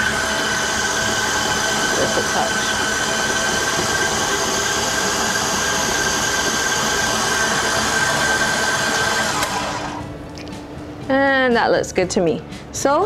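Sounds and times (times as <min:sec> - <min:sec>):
stand mixer whining: 0:00.0 - 0:10.1.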